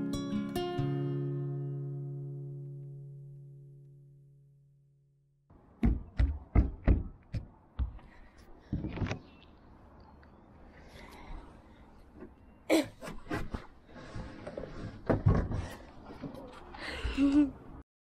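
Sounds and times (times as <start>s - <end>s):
guitar music: 0.0s - 4.7s
sharp knocks and thuds: 5.8s - 8.1s.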